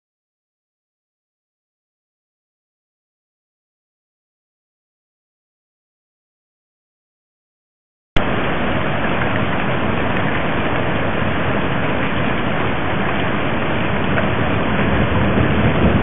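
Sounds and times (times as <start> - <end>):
storm wind and rain: 8.2 - 16.0.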